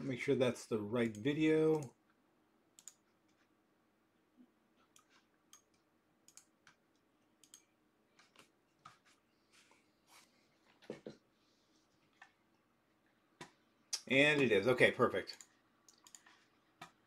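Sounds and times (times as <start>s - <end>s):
mouse and keyboard clicks: 15.3s - 17.0s.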